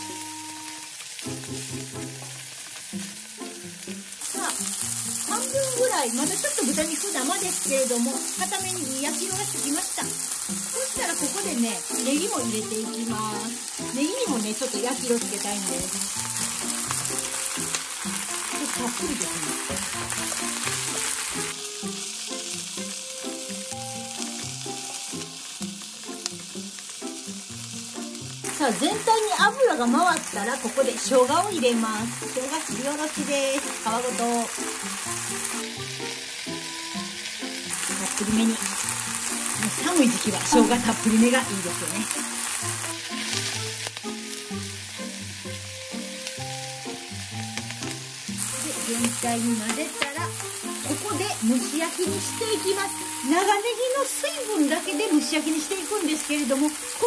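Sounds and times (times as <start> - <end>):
light background music: 0.0 - 57.0
meat sizzling in a frying pan: 0.0 - 57.0.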